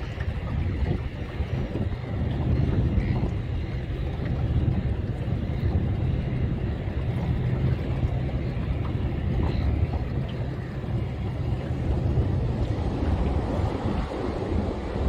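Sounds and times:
sea noise: 0.0s - 15.0s
wind rumble: 0.0s - 15.0s.

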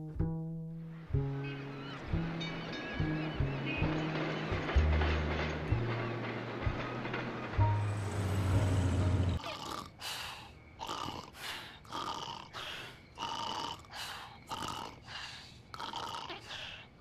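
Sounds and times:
low rumble: 3.4s - 9.4s.

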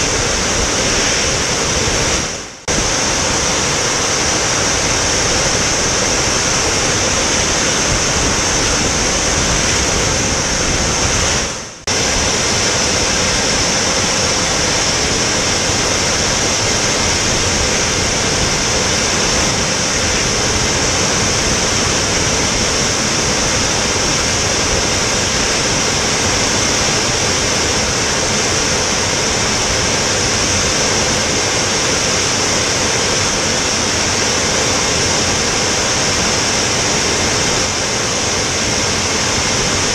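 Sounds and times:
drone engine and airflow: 0.0s - 39.9s.

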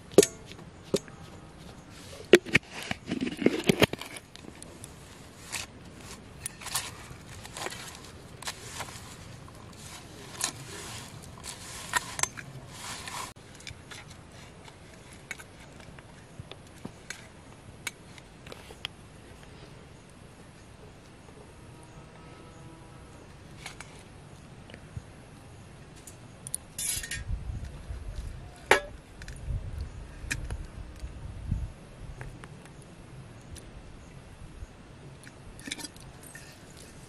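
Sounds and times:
dough scraping on metal plate: 7.5s - 13.4s.

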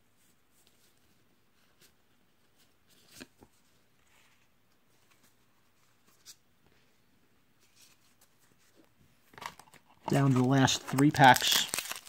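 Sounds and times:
trading cards tapping and rustling: 9.3s - 12.0s.

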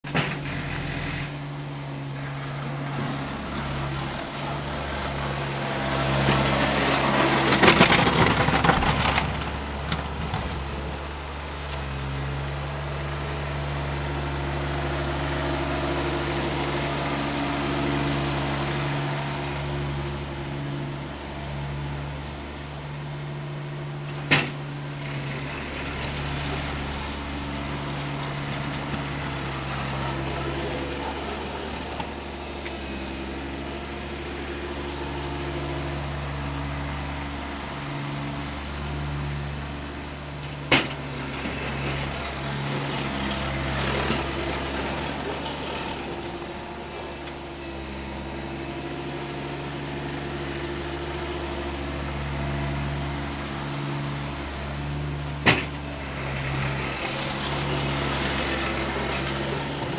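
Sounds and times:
garden tractor engine running: 0.0s - 59.9s
metal clank: 55.4s - 55.8s.

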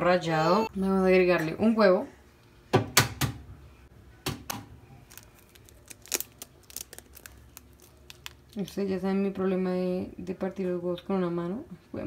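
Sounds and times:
eggshell crackling: 4.9s - 9.0s.

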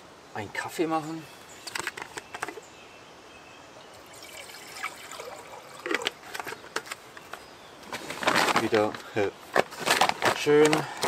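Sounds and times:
water pouring into metal pot: 3.9s - 6.2s.

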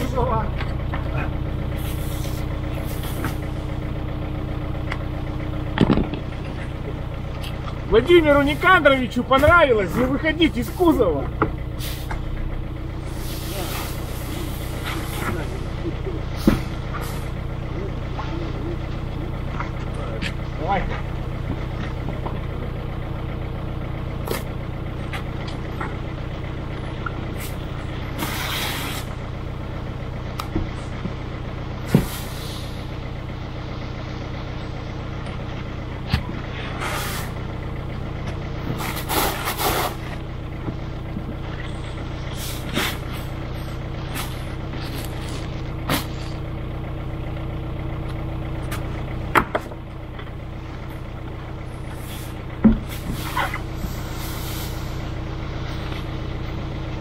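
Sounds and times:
vehicle engine running: 0.0s - 57.0s
short hissing bursts: 28.2s - 29.1s, 53.9s - 54.9s.

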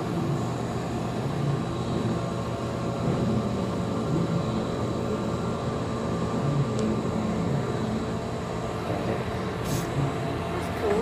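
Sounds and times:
low indoor rumble and hum: 0.0s - 11.0s.

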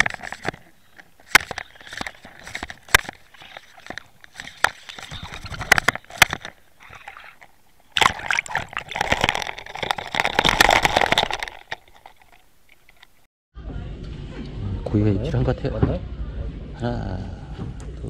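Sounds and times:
water sloshing and gurgling: 2.0s - 13.2s.

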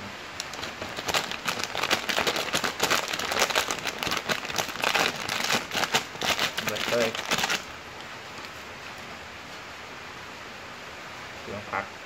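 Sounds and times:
plastic packet crinkling: 0.4s - 7.7s.

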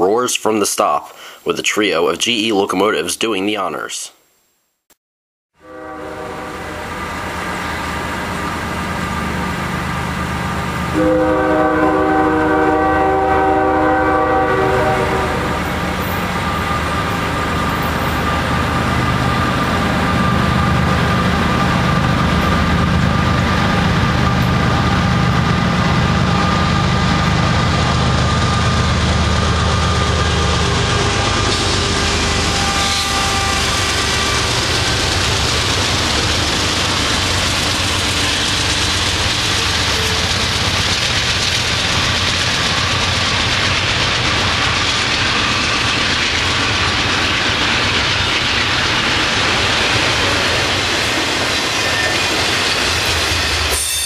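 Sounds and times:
train horn blast: 5.6s - 7.3s, 10.9s - 17.1s, 31.0s - 34.8s
diesel locomotive engine drone: 5.6s - 54.0s.

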